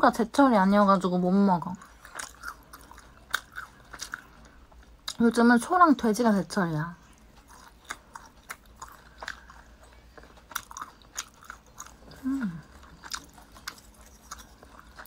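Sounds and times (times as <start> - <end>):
person chewing food: 1.8 - 5.2, 7.0 - 15.0
person humming mm: 12.1 - 12.7.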